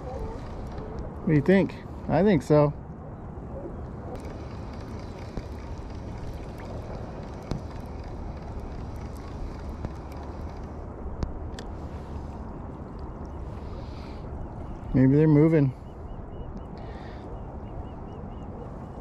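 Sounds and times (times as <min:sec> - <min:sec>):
faint clicks: 0:04.1 - 0:11.7.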